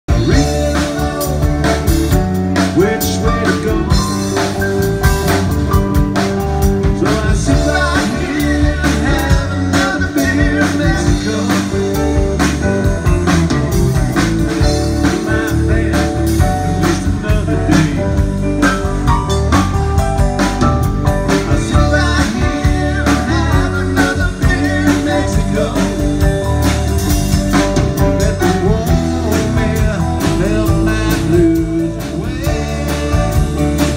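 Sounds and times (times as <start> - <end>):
person singing: 0.1 - 4.6, 6.6 - 12.4, 14.6 - 18.6, 21.2 - 26.9, 27.9 - 33.9
live blues band playing: 0.1 - 33.9.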